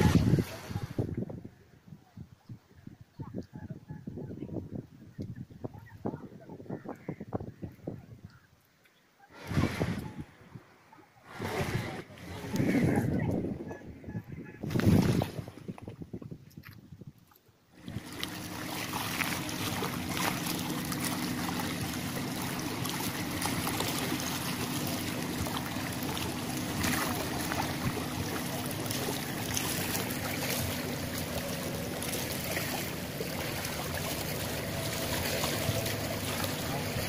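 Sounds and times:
water lapping against rocks: 0:00.0 - 0:01.2, 0:09.3 - 0:37.0
boat engine drone: 0:17.8 - 0:37.0.

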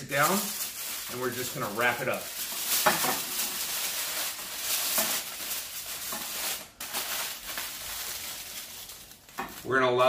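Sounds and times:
aluminium foil crinkling: 0:00.0 - 0:10.0.

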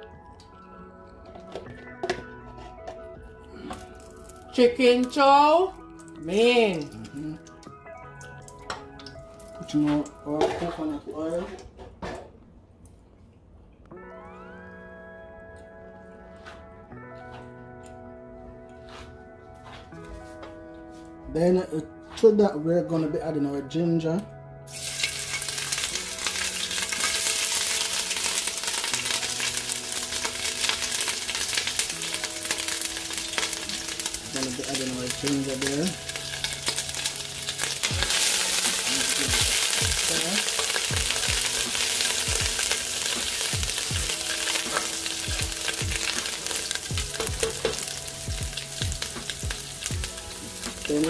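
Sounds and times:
ginger sizzling in hot oil: 0:24.7 - 0:51.0.

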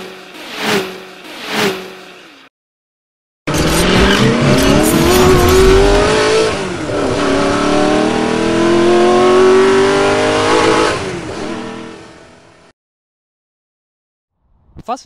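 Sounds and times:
car engine accelerating hard: 0:03.5 - 0:12.6.

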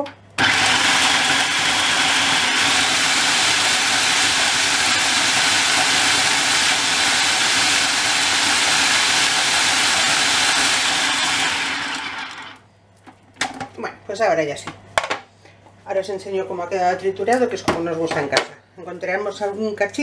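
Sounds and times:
food processor whirring: 0:00.4 - 0:12.6.

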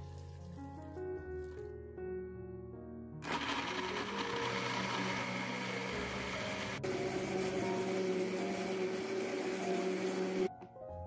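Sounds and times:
blender motor running: 0:03.2 - 0:10.5.

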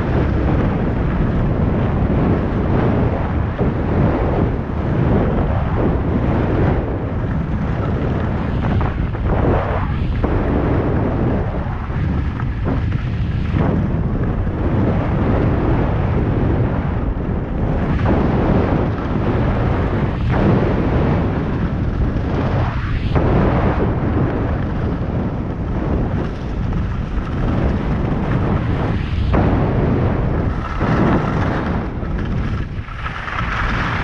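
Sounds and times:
wind buffeting microphone: 0:00.0 - 0:34.0
skis scraping on snow: 0:30.4 - 0:34.0.

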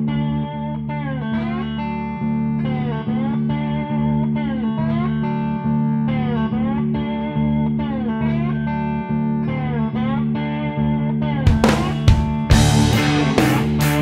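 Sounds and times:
guitar background music: 0:00.0 - 0:14.0
sliding pitch phrase: 0:11.5 - 0:14.0.

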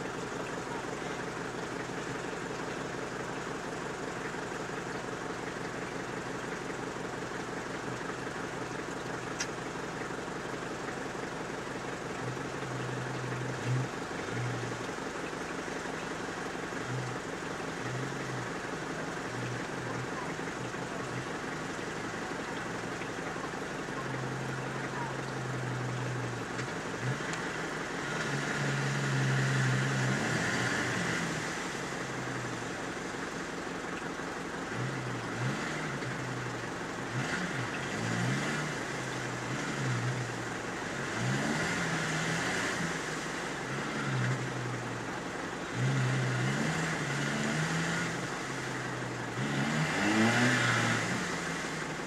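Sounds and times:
wheels spinning through mud: 0:00.0 - 0:52.0
engine revving hard: 0:23.9 - 0:32.5, 0:34.7 - 0:44.8, 0:45.6 - 0:52.0.

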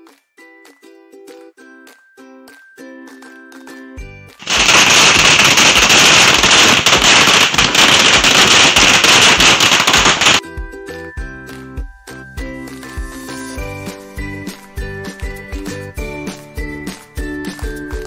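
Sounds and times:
firework fountain hissing crackling: 0:04.4 - 0:10.4
background music: 0:10.4 - 0:18.0.

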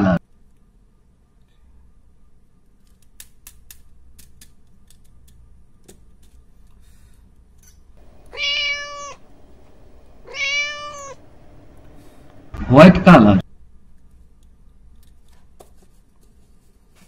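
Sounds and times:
cat meowing: 0:08.0 - 0:12.6.

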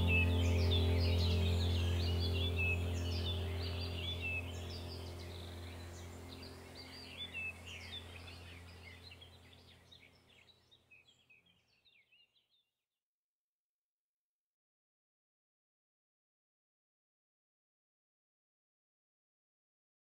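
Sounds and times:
low steady hum: 0:00.0 - 0:10.5
birdsong chirps: 0:00.0 - 0:12.7.

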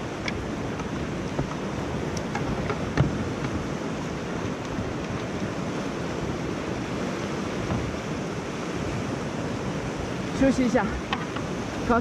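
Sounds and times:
whitewater river rushing: 0:00.0 - 0:12.0
sharp knocks: 0:02.2 - 0:03.6.

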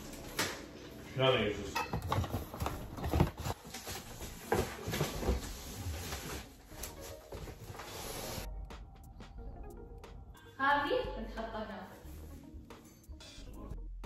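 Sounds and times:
cardboard boxes being handled: 0:02.0 - 0:07.9.

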